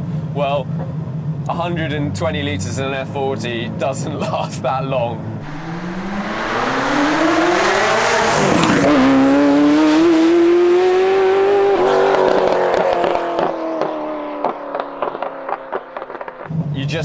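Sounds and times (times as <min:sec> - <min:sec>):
exhaust crackles: 0:05.4 - 0:10.1
sports car engine accelerating: 0:05.4 - 0:16.5.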